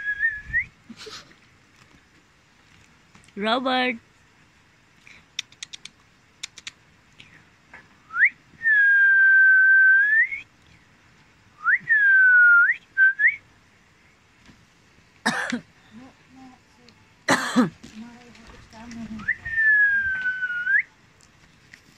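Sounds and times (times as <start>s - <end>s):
person whistling: 0.0s - 0.7s, 8.1s - 10.4s, 11.6s - 13.4s, 19.2s - 20.9s.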